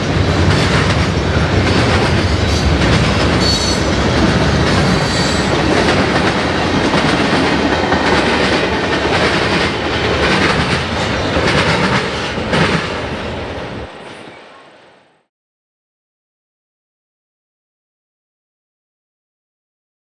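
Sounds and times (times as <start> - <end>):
wheels clacking over rail joints: 0.0 - 13.2
freight train rumbling past: 0.0 - 15.3.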